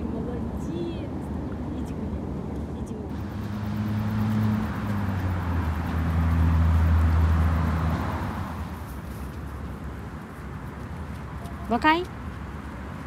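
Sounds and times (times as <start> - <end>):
vehicle engine passing by: 3.1 - 9.4.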